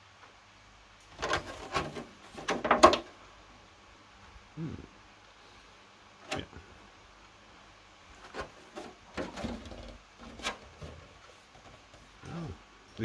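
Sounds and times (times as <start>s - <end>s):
plastic crackling and rubbing: 1.1s - 3.1s, 8.1s - 12.2s.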